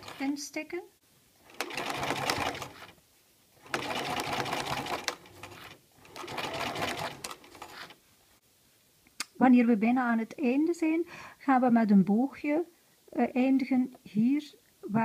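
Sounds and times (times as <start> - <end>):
sewing machine stitching: 0.0 - 0.3, 1.4 - 3.0, 3.6 - 8.0.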